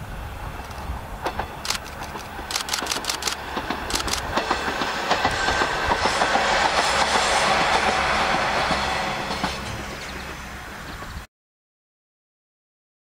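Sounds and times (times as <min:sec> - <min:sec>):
train wheels clattering over rails: 0:00.5 - 0:11.3
sharp clicks: 0:01.6 - 0:04.3.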